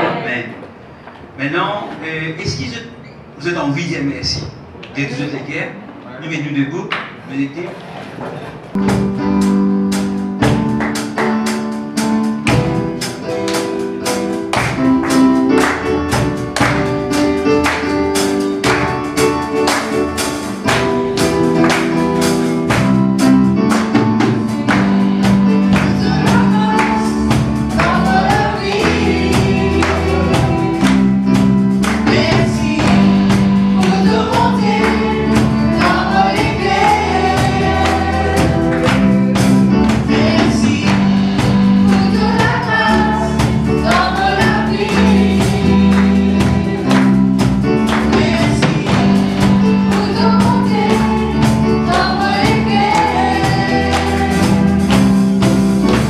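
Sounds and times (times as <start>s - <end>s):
gospel band playing: 0.0s - 56.0s
drum kit beat: 8.7s - 56.0s
electric bass: 8.8s - 56.0s
keyboard: 8.8s - 56.0s
people singing into microphones: 23.9s - 56.0s.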